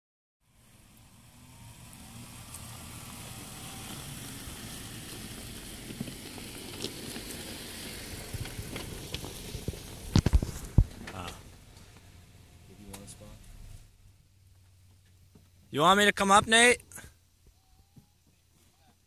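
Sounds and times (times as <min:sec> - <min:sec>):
engine running low: 0:00.4 - 0:15.8
tyres crunching over dirt and stones: 0:01.8 - 0:12.1.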